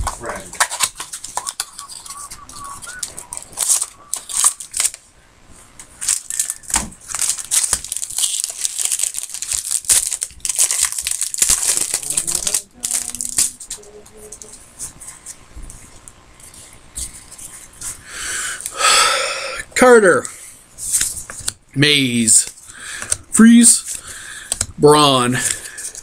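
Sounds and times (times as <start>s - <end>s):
foil wrapper crinkling and tearing: 0.0s - 5.0s, 5.8s - 13.8s.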